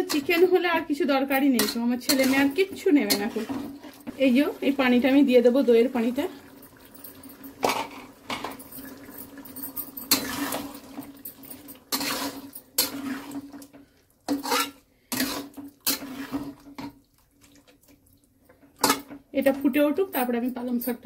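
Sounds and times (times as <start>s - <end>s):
spoon scraping and clinking pan: 0.0s - 0.6s, 1.3s - 4.2s, 7.1s - 13.5s, 14.3s - 16.9s, 18.8s - 21.0s.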